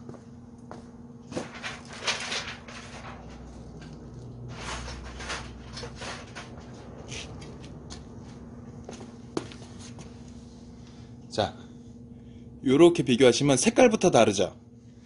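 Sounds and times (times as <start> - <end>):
steady low hum: 0.0 - 15.0
rustling and handling noises: 1.2 - 10.5.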